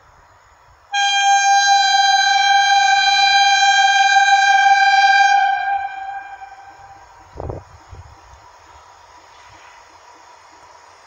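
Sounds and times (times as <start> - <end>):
train horn blast: 0.9 - 7.3.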